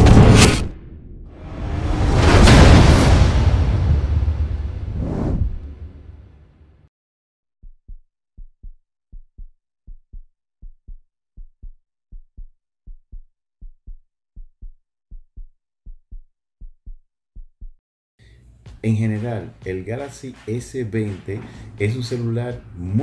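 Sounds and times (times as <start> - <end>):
heartbeat thumps: 7.6 - 17.8.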